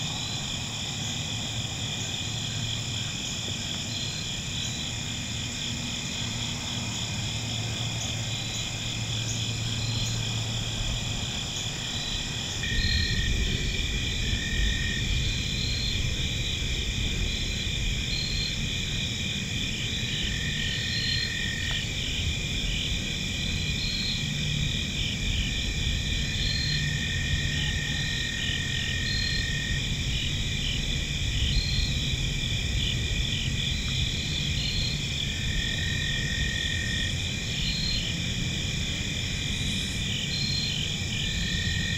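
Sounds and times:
insects trilling: 0.0 - 41.9.

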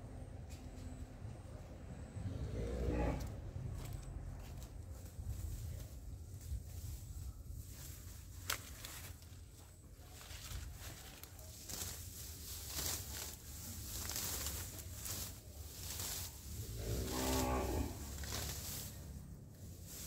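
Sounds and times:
cow mooing: 2.3 - 3.4, 16.6 - 18.3
leafy plants rustling and snapping: 7.7 - 20.0.

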